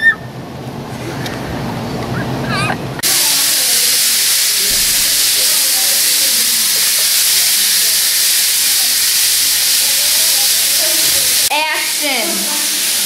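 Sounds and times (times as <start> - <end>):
loud static hiss: 0.3 - 13.0
faint voices: 2.1 - 7.5, 9.7 - 12.8.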